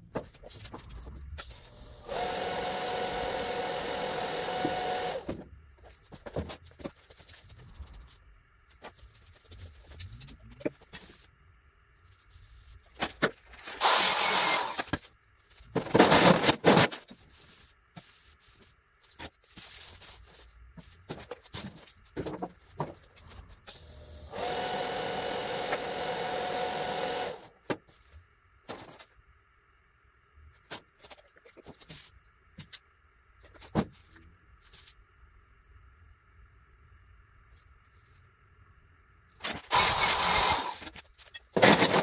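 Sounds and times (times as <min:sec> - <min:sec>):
welding arc buzz: 0:01.4 - 0:05.4, 0:13.7 - 0:15.0, 0:23.7 - 0:27.6, 0:39.3 - 0:42.0.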